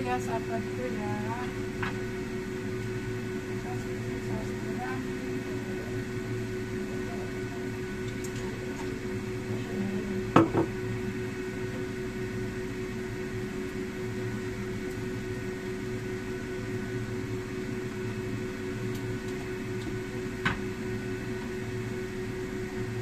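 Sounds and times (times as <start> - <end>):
kitchen fan motor humming: 0.0 - 23.0.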